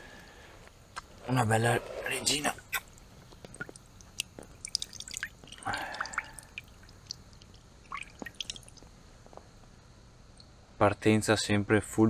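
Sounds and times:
water dripping: 2.6s - 9.0s.

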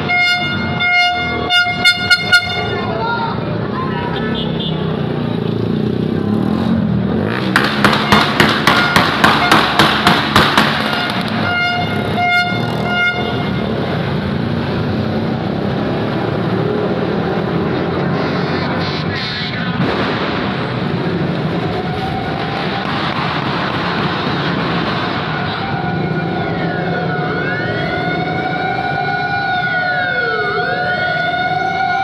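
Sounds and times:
vehicle horn tooting: 0.0s - 3.0s, 4.1s - 4.8s, 8.0s - 9.8s, 10.8s - 13.7s
traffic passing: 0.0s - 32.0s
sharp bangs: 7.4s - 11.5s, 19.6s - 25.7s.

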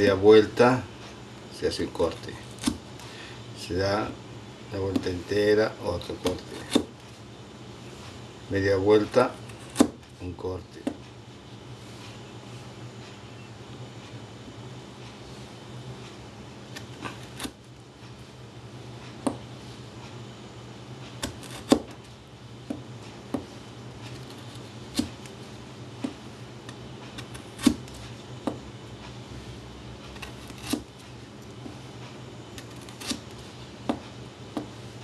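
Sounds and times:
knife cutting carrot: 1.9s - 2.8s, 6.1s - 6.9s, 9.2s - 10.0s, 16.7s - 17.6s, 21.1s - 22.0s, 22.7s - 25.3s, 26.0s - 28.6s, 30.0s - 31.0s, 32.5s - 34.7s.

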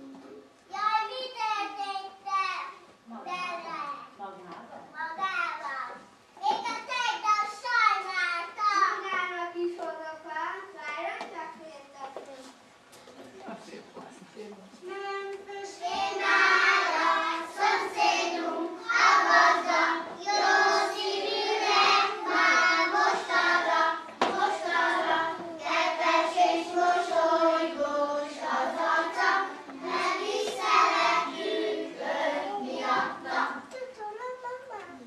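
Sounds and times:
children singing in unison: 15.7s - 33.7s.

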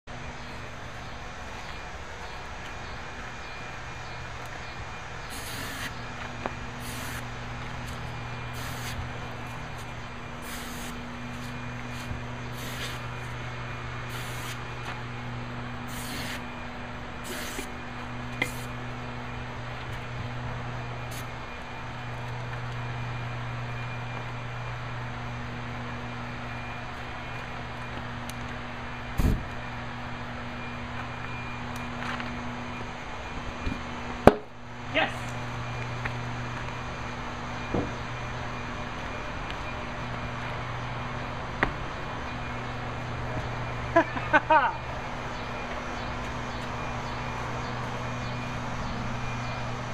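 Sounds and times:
steady low hum: 0.1s - 49.9s
aerosol can spraying: 5.3s - 5.9s, 6.8s - 7.2s, 8.5s - 9.0s, 10.4s - 11.0s, 12.5s - 13.0s, 14.1s - 14.6s, 15.9s - 16.4s, 17.2s - 17.7s, 18.4s - 18.8s.

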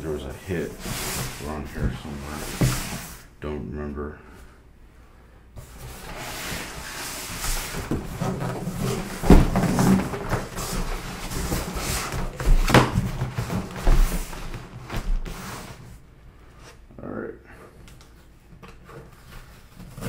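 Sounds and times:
cardboard rubbing and scraping: 0.3s - 3.2s, 5.6s - 16.0s, 18.8s - 20.0s.

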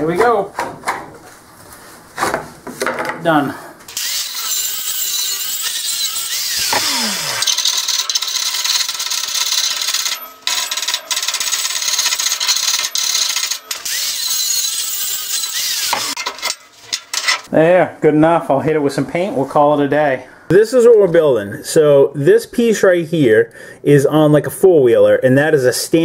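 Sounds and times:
angle grinder grinding steel: 3.9s - 17.5s.

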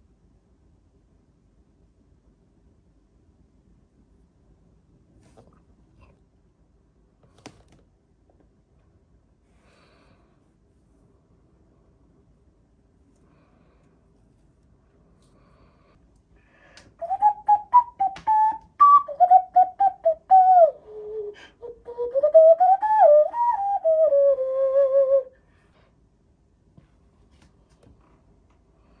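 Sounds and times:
hand whistle notes: 17.0s - 25.4s.

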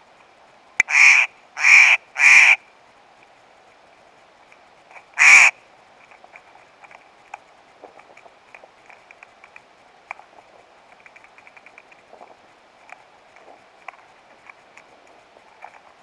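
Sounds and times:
jay harsh call: 0.8s - 2.6s, 5.2s - 5.6s.

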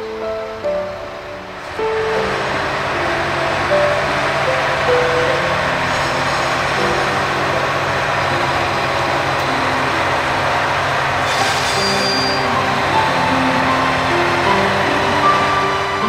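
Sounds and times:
diesel engine idling: 0.7s - 11.3s.

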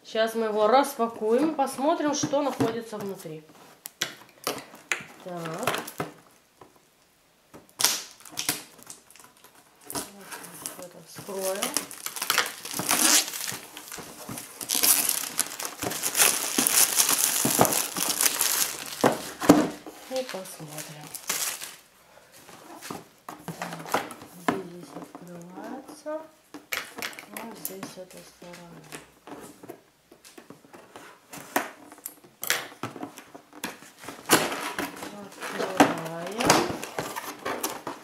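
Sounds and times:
plastic wrap crinkling: 1.0s - 6.8s, 7.6s - 21.9s, 22.5s - 38.0s
cardboard scraping rustles: 9.8s - 25.2s, 33.7s - 38.0s.

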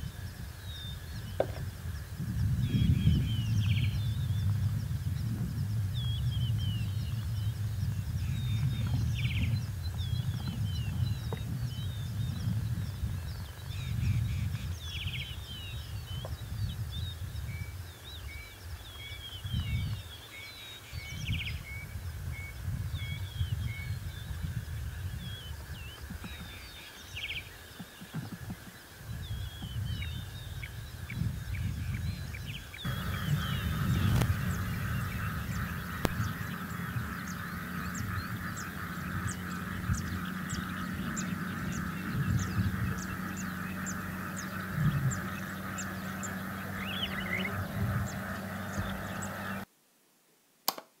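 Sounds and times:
birds chirping: 2.4s - 21.8s, 22.4s - 49.7s
steady buzzing hiss: 32.6s - 51.0s.

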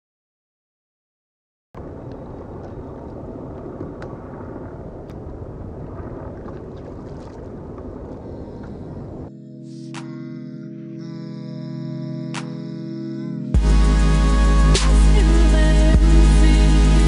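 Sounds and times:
wind buffeting microphone: 1.8s - 9.3s
water lapping: 2.1s - 9.3s
small splashes against kayak hull: 5.8s - 8.8s.

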